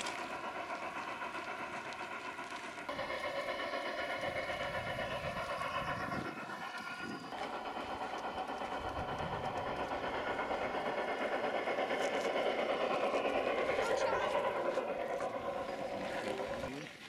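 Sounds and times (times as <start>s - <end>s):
model train rolling along track: 0.0s - 17.0s.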